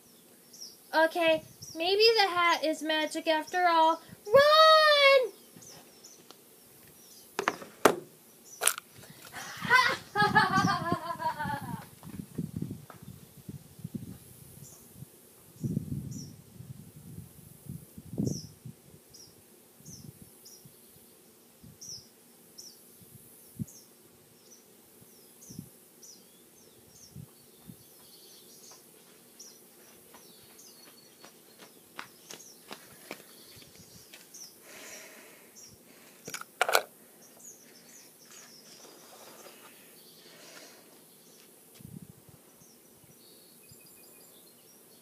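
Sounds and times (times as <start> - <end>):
small bird chirping: 0.0 - 2.2, 18.2 - 21.0, 23.5 - 34.6, 37.2 - 41.5, 42.5 - 45.0
faint insect hiss: 0.0 - 45.0
sharp loud knock: 7.4 - 8.1.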